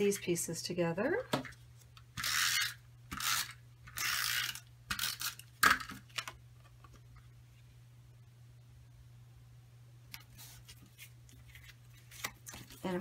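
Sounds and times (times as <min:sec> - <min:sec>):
tape dispenser rasping on card: 0:02.2 - 0:05.8.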